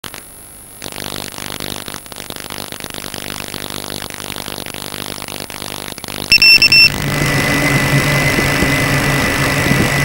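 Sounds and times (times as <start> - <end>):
drone motors whining: 6.0 - 10.0.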